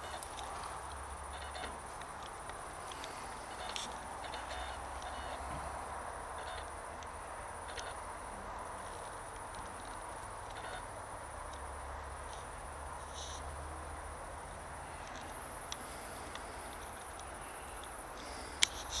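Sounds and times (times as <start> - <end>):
crickets chirring: 0.0 - 19.0
soft outdoor hiss: 0.0 - 19.0.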